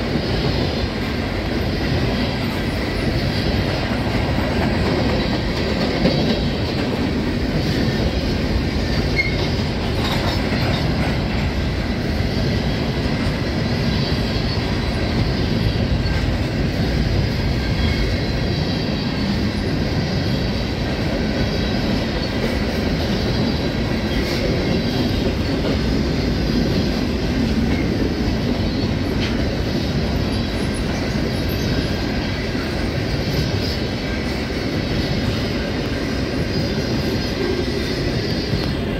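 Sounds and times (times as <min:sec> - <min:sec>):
steel wheels rumbling on rail: 0:00.0 - 0:38.9
faint high wheel squeal: 0:09.1 - 0:10.9.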